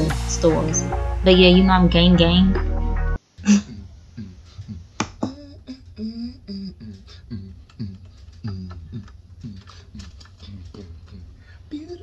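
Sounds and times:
man beatboxing: 3.4s - 12.0s.

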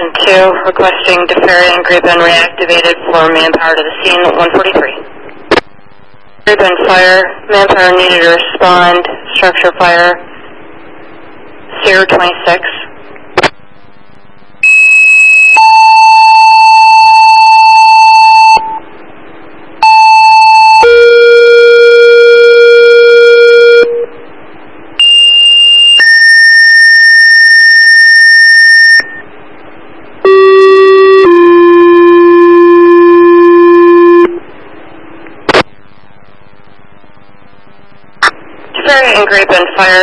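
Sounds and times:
radio hiss: 0.0s - 14.6s, 35.3s - 40.0s.

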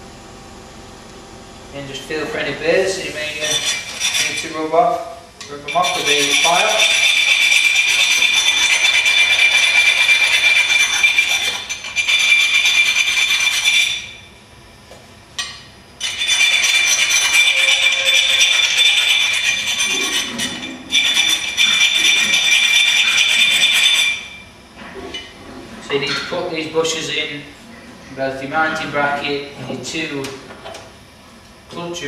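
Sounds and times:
hand file rasping: 3.4s - 4.6s, 5.7s - 14.1s, 16.0s - 24.2s.

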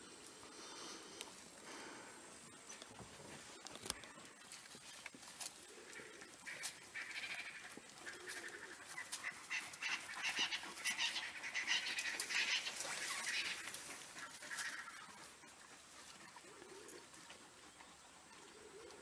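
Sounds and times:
wild dogs twittering calls: 5.4s - 19.0s.

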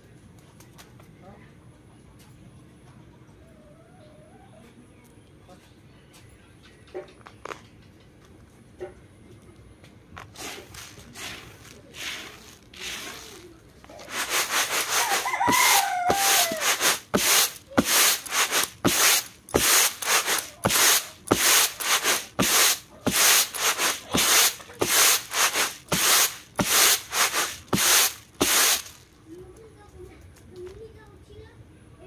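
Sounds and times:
grains swishing on bamboo tray: 10.2s - 29.0s
chicken calling: 14.1s - 17.0s.

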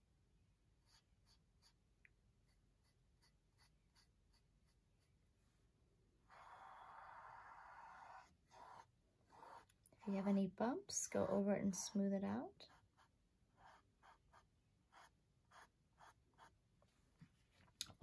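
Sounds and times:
paintbrush stroking canvas: 0.8s - 5.7s, 7.2s - 10.3s, 12.6s - 17.6s.

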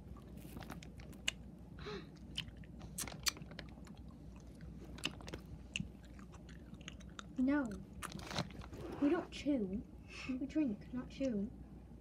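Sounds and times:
candy biting and crunching: 0.2s - 1.4s, 2.1s - 8.7s.

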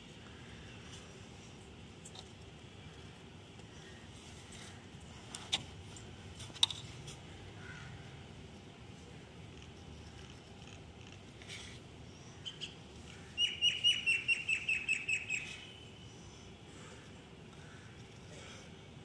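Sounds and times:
bird chirping: 12.2s - 16.0s.

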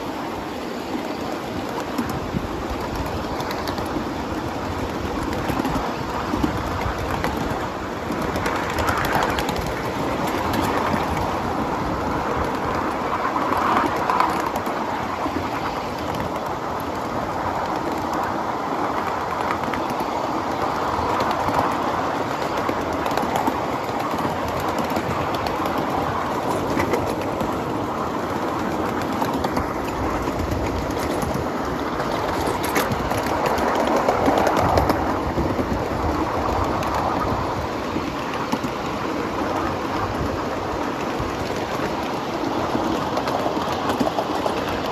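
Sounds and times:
light clicks of train wheels: 0.0s - 44.9s
steel wheels rumbling on rail: 0.0s - 44.9s.

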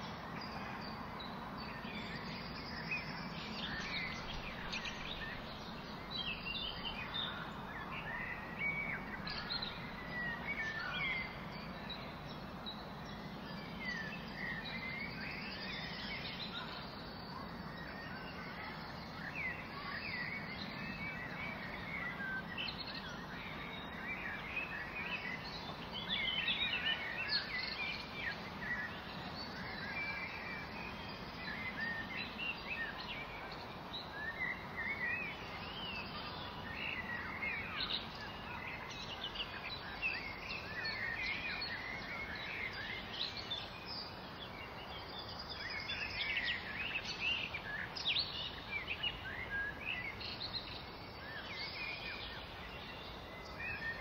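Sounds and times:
songbirds chirping and singing: 0.0s - 54.0s
wind through grass: 0.0s - 54.0s.

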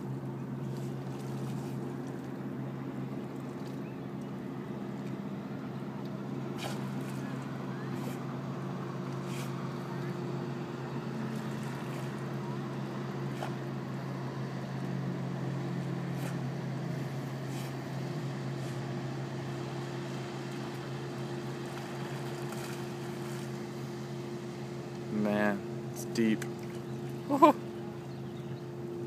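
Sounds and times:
low engine drone: 0.0s - 29.0s.

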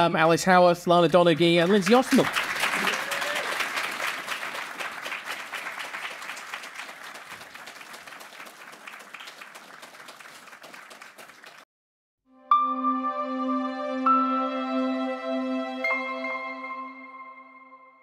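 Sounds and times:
audience applauding: 1.2s - 11.7s.

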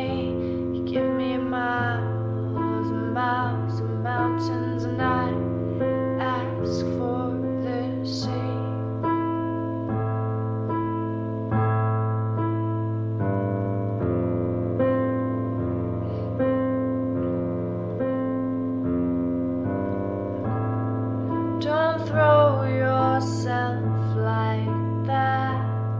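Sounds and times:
person singing softly: 0.0s - 9.6s, 21.3s - 25.9s
electronic keyboard piano chords: 0.0s - 25.9s.

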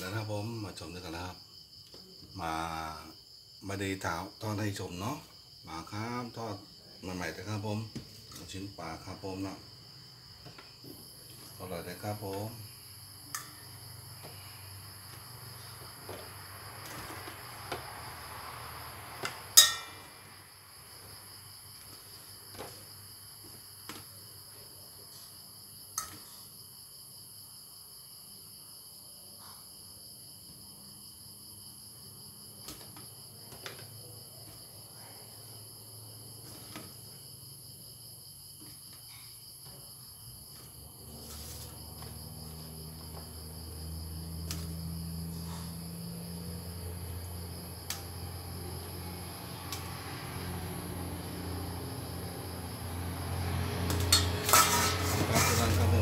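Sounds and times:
crickets trilling: 0.0s - 56.0s
metal utensil clinking on bowl: 19.6s - 20.0s.

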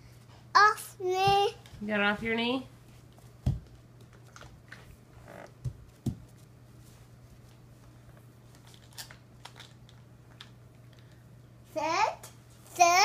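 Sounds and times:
steady low hum: 0.0s - 13.0s
child dancing on wooden floor: 5.2s - 6.4s.

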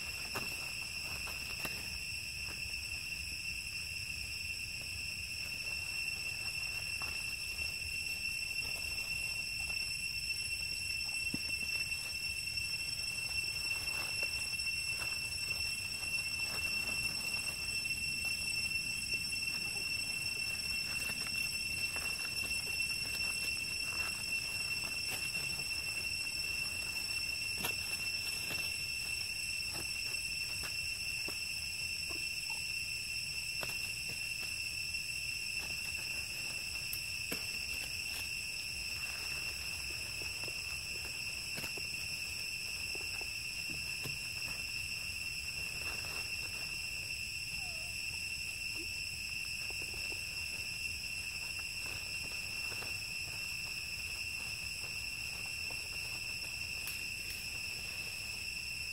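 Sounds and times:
high-pitched insect drone: 0.0s - 58.9s
dry leaf litter rustling: 13.0s - 30.6s.

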